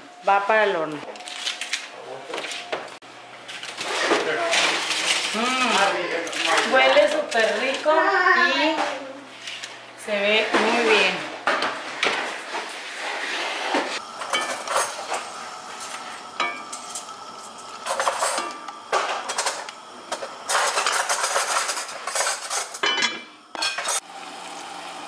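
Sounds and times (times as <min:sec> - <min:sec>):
pots and pans clattering: 0:13.7 - 0:24.0
utensils scraping a cast-iron pan: 0:15.8 - 0:18.6, 0:20.5 - 0:22.8.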